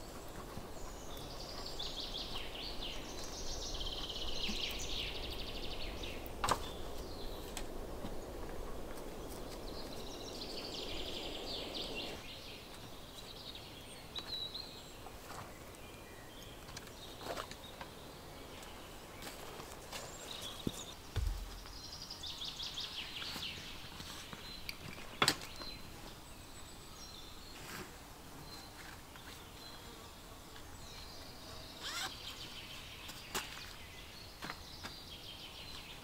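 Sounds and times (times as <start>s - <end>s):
low background noise: 0.0s - 36.0s
songbirds chirping and trilling: 0.0s - 36.0s
sharp knock: 21.2s - 21.8s.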